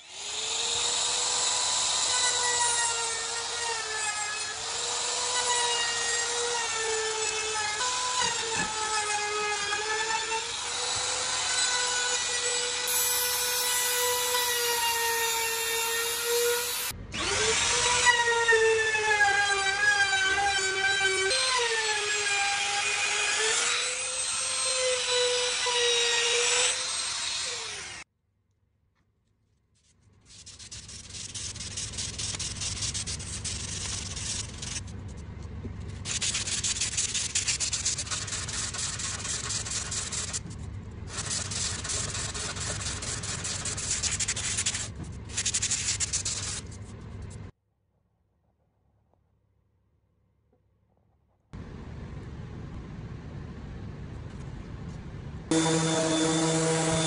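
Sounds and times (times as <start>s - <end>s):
router high whine: 0.0s - 3.6s, 12.8s - 18.1s, 55.5s - 57.0s.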